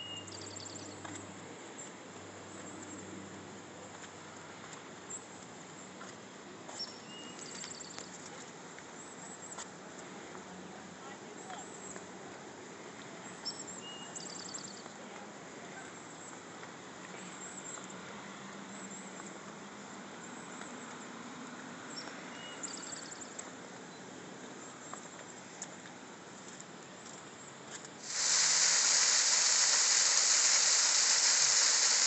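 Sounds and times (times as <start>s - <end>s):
steady hiss: 0.0s - 1.1s, 27.9s - 32.0s.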